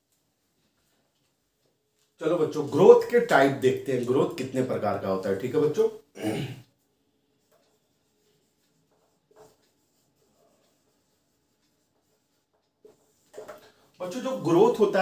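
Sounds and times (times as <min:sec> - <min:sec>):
marker scratching on whiteboard: 0:07.3 - 0:15.0.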